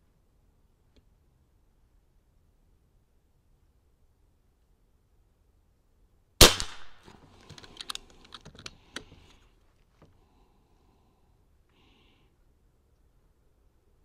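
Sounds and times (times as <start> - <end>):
air rifle shot: 6.4 - 7.1
rifle cocking handle clicks: 7.4 - 9.1.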